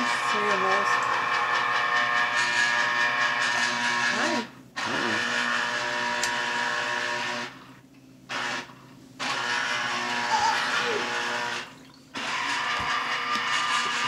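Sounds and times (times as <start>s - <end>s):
citrus juicer motor whirring: 0.0s - 14.0s.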